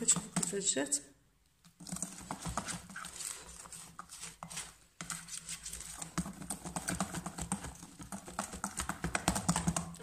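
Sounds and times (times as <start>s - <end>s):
whisk tapping against bowl: 0.0s - 0.7s, 5.9s - 10.0s.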